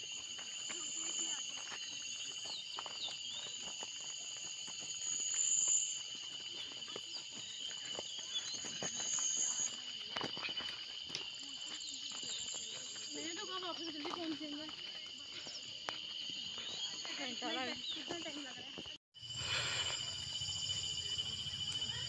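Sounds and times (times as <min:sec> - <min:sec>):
footsteps crunching on stony trail: 0:00.0 - 0:19.0
insects chorus: 0:00.0 - 0:22.0.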